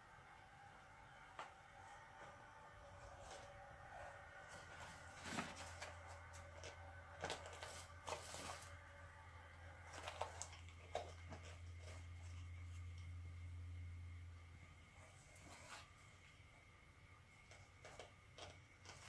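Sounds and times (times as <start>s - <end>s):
low steady hum: 0.0s - 19.0s
cat rummaging among sachets: 2.2s - 9.0s, 9.7s - 13.1s, 17.4s - 19.0s.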